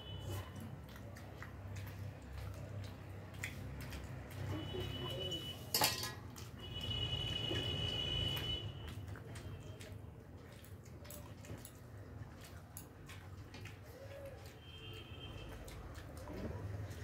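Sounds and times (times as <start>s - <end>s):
sharp clink of metal tableware: 5.7s - 6.2s
fingers clinking on metal plates: 5.7s - 6.5s.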